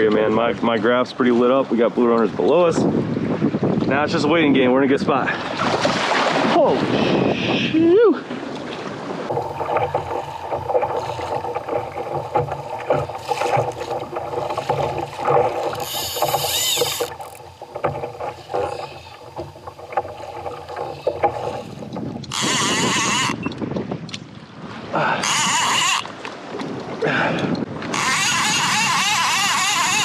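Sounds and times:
sea sloshing against kayak hull: 0:05.3 - 0:07.3, 0:08.2 - 0:30.0
fishing reel cranked fast: 0:15.7 - 0:17.4, 0:22.3 - 0:23.4, 0:25.2 - 0:26.1, 0:27.9 - 0:30.0.

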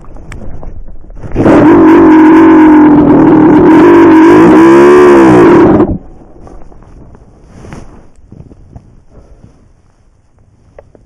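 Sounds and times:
dirt bike engine revving: 0:01.3 - 0:06.0.

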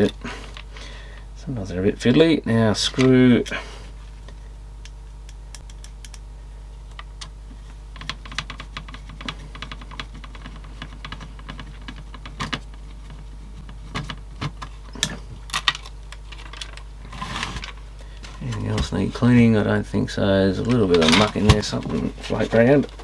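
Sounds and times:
handling of parts: 0:06.9 - 0:19.5, 0:20.6 - 0:23.0.

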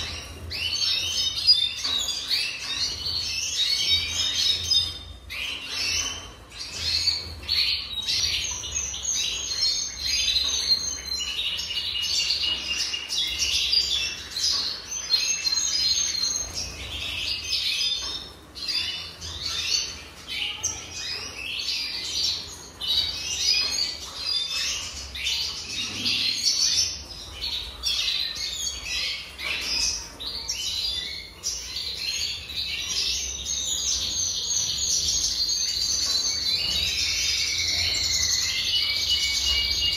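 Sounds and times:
birds chirping and twittering: 0:00.0 - 0:39.9.

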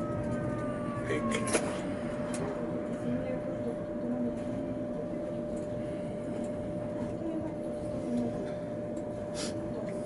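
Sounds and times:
steady electrical hum: 0:00.0 - 0:10.0
tram running rumble: 0:00.0 - 0:10.0.

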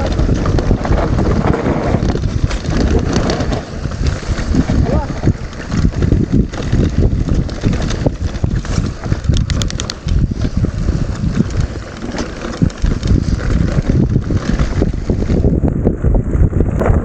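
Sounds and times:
bike knocking and rattling: 0:00.0 - 0:17.0
wind buffeting microphone: 0:00.0 - 0:17.0
quick ticks: 0:09.2 - 0:10.2.

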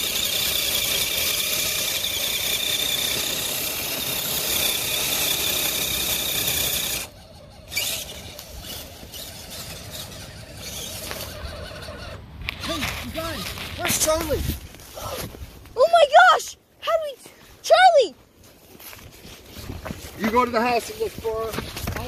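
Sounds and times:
electric motor whining: 0:00.0 - 0:12.2.

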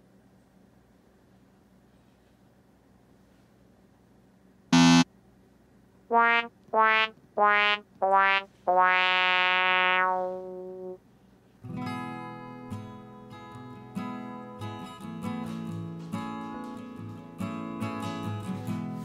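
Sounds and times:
sad trombone sound effect: 0:06.1 - 0:11.0.

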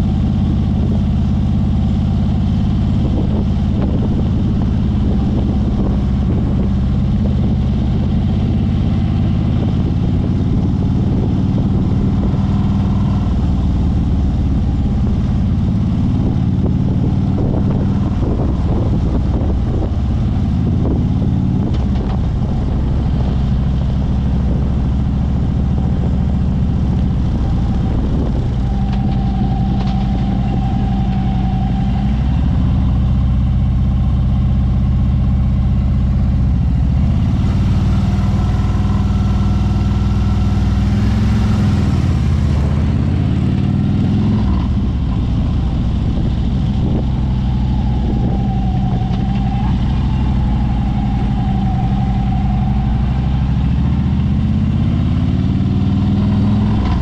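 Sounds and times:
motorcycle engine droning: 0:00.0 - 0:57.0.

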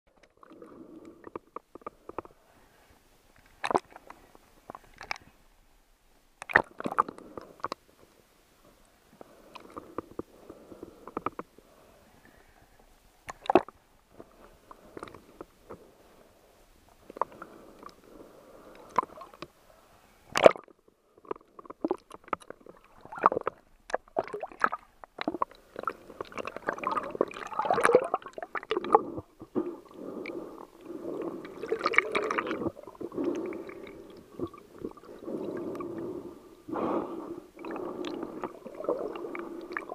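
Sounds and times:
muffled underwater gurgling: 0:24.2 - 0:37.0.

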